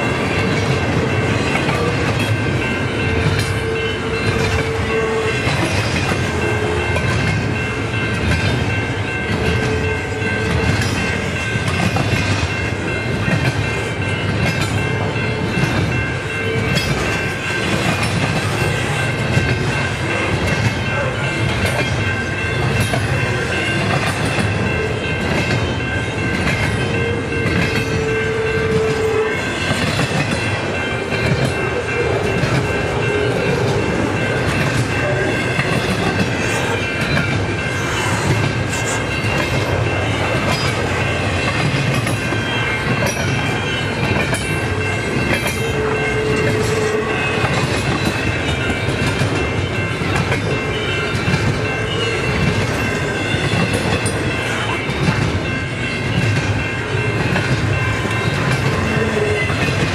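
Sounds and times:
train cars rumbling and rattling: 0.0s - 59.9s.

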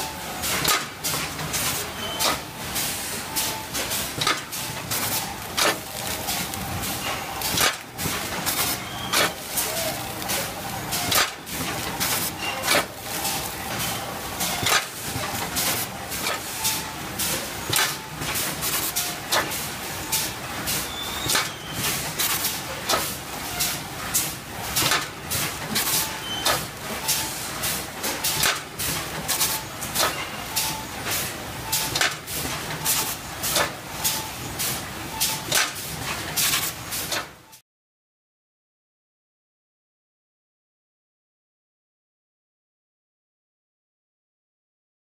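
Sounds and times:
automatic bagging machine running: 0.0s - 37.6s
packets dropping through steel hopper: 4.1s - 16.4s.

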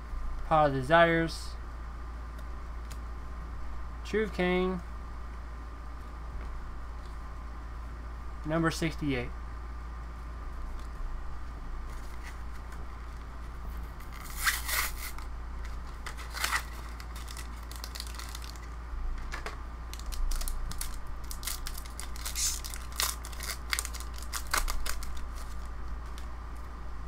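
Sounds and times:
foil wrapper tearing and crinkling: 14.1s - 15.2s, 16.0s - 18.7s, 19.9s - 26.3s.

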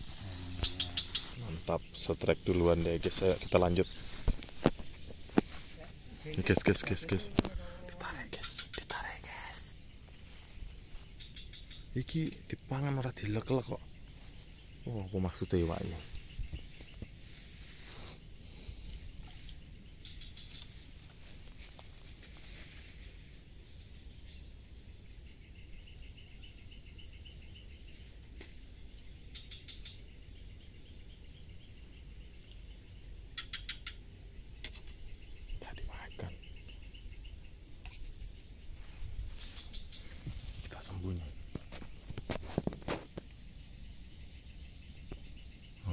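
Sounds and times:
pulsed chirping trills: 0.0s - 20.9s
high-pitched insect drone: 0.0s - 45.9s.

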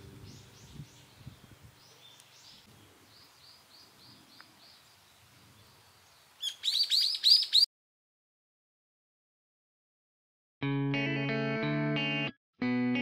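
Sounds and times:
quiet outdoor ambience: 0.0s - 7.6s
bird calls: 0.2s - 7.7s.

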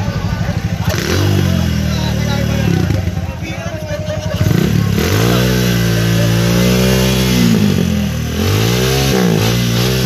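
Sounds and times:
motorcycle engine revving: 0.0s - 10.0s.

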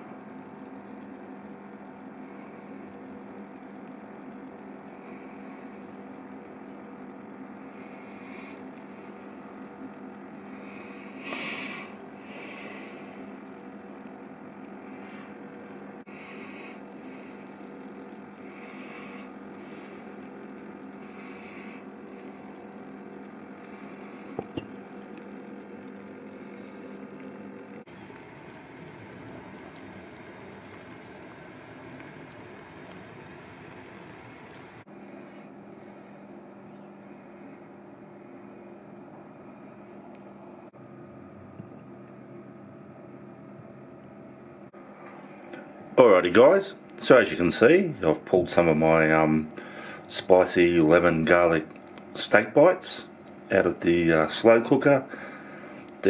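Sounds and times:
low electrical hum: 0.0s - 56.0s
slow cooker bubbling: 0.0s - 56.0s.

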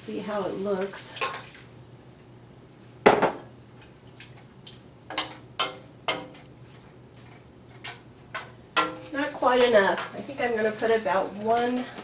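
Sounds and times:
metal spoon knocking on pot: 8.8s - 10.1s.

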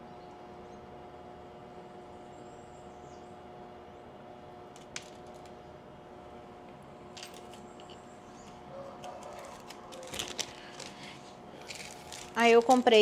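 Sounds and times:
faint steady hum: 0.0s - 13.0s
chain clicking and clinking: 11.6s - 13.0s.

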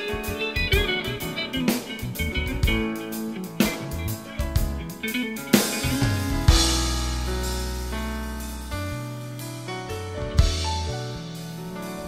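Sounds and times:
band playing instrumental music: 0.0s - 8.8s.

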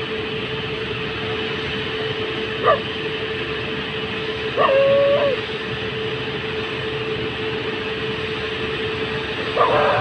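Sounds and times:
electric locomotive humming: 0.0s - 10.0s
dog whining: 4.6s - 5.4s.

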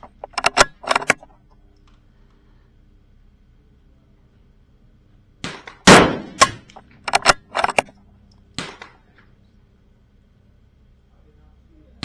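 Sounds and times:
rifle shot: 5.4s - 7.4s, 8.6s - 9.0s
rifle bolt metallic clicks: 6.4s - 7.9s.

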